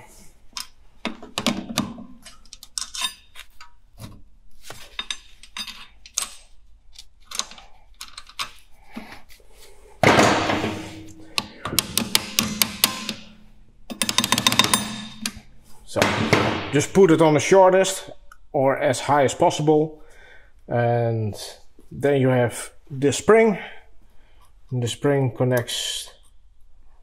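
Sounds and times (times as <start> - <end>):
pliers and metal parts clinking: 2.2 - 3.8, 4.9 - 8.6, 11.0 - 15.5.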